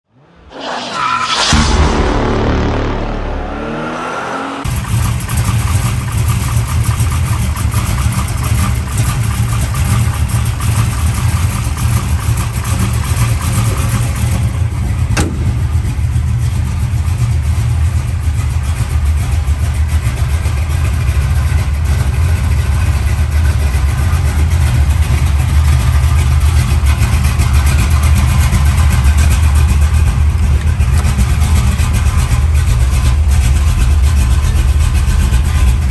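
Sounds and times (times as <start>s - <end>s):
falling pitch sound effect: 0.2s - 4.7s
car engine idling: 2.2s - 35.9s.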